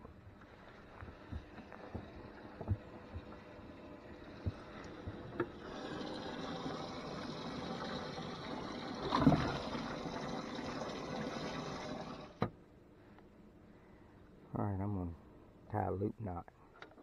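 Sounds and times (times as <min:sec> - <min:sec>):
pump rushing water: 0:00.6 - 0:12.5.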